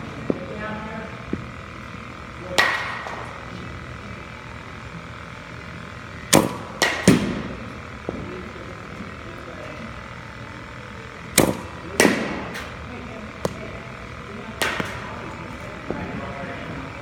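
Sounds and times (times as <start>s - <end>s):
bat striking balls: 1.2s - 3.5s, 6.2s - 9.2s, 10.1s - 16.4s
pitching machine thwack: 6.3s - 8.3s, 11.3s - 12.7s, 13.4s - 16.0s.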